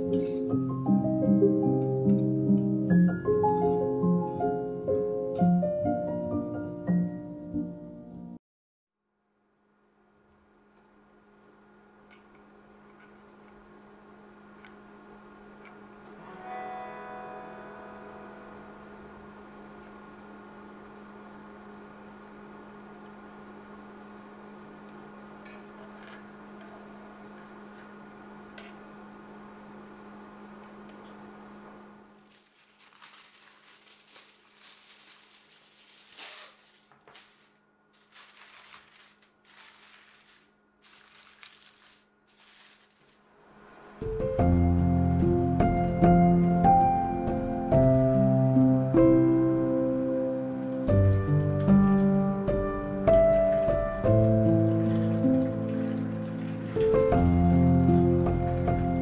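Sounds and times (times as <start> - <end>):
aluminium foil crinkling: 32.2 - 43.3.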